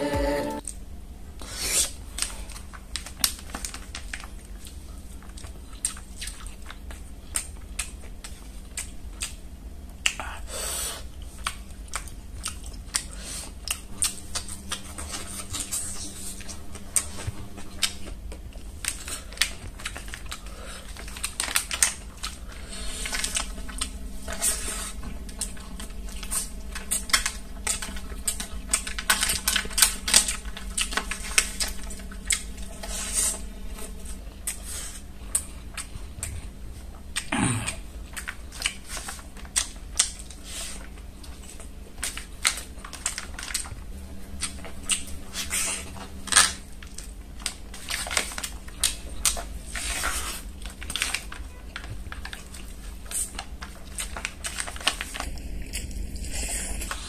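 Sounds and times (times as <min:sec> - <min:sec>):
wet chewing and lip smacks: 0:01.8 - 0:10.4, 0:11.1 - 0:51.3.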